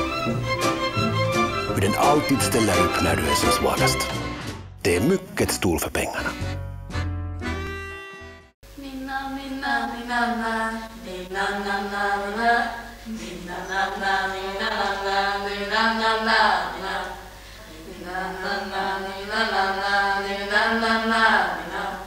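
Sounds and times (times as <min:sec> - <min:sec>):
voices singing slow melody: 0:01.7 - 0:04.1, 0:08.7 - 0:22.0.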